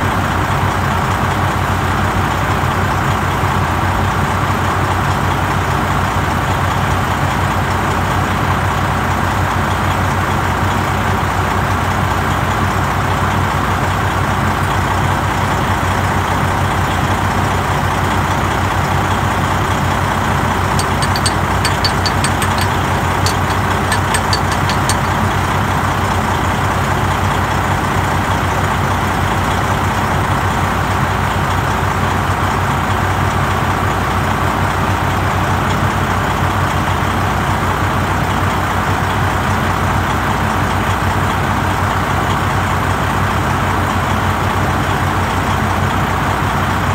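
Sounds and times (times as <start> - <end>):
truck engine idling: 11.5 - 27.5
faint high ticks: 20.8 - 25.2.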